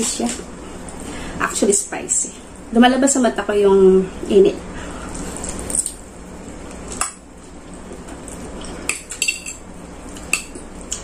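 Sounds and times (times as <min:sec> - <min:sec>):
fork clinking on a ceramic plate: 0:08.9 - 0:09.6.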